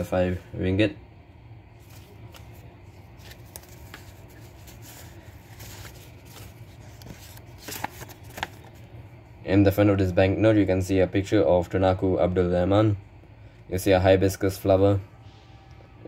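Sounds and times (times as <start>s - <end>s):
banknotes rustling: 1.8s - 9.0s.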